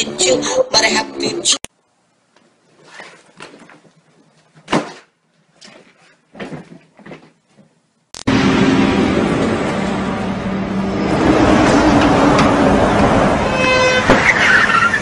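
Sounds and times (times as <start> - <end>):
rustling bumps: 2.7 - 7.8.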